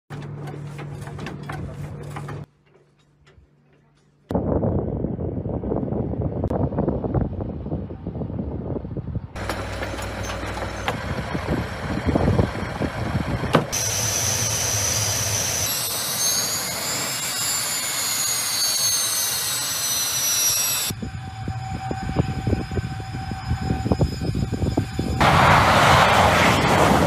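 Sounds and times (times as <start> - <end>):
jet engines running: 9.4 - 18.6, 20.2 - 27.0
whining tones rising and falling: 9.4 - 27.0.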